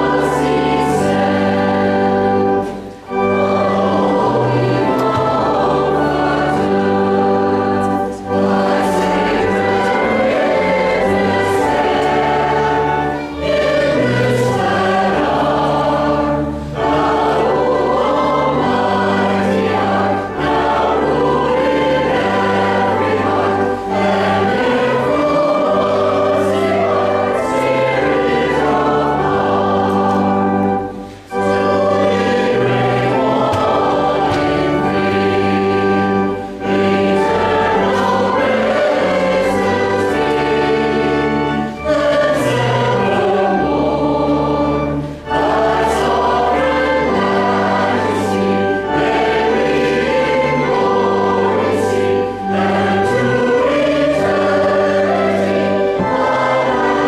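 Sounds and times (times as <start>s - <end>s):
choir singing a hymn: 0.0s - 57.0s
held low accompanying notes: 0.0s - 57.0s.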